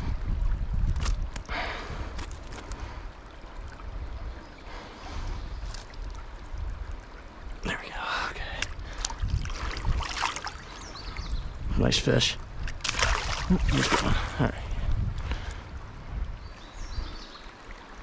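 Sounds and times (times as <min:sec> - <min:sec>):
low rumble on microphone: 0:00.0 - 0:03.1
stream running over rocks: 0:00.0 - 0:18.0.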